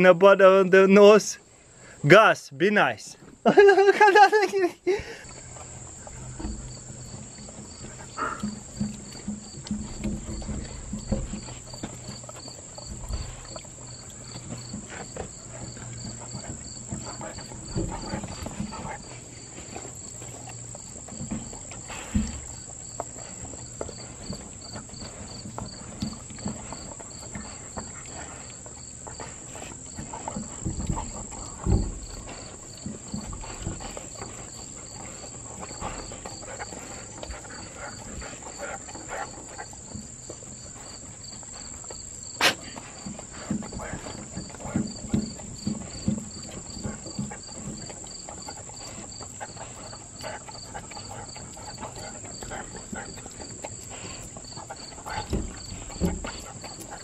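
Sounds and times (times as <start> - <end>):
insects chirping: 0.0 - 57.0
dogs licking: 4.3 - 57.0
thumps: 30.0 - 35.2.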